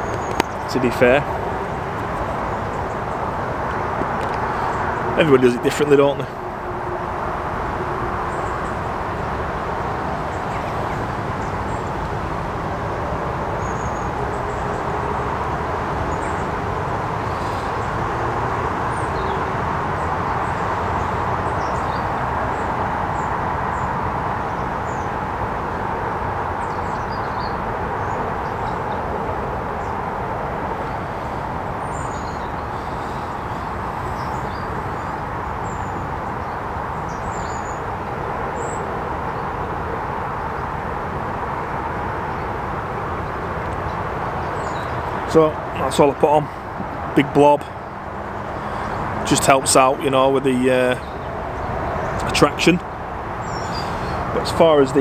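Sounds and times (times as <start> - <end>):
small birds chirping: 0.0 - 6.4, 8.2 - 15.0, 16.0 - 18.1, 26.6 - 40.8, 42.3 - 55.0
river water rushing: 0.0 - 55.0.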